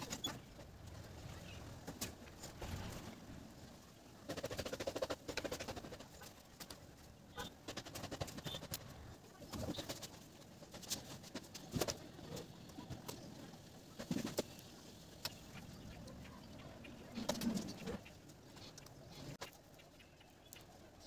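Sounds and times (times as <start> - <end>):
bird cooing: 15.6 - 19.3.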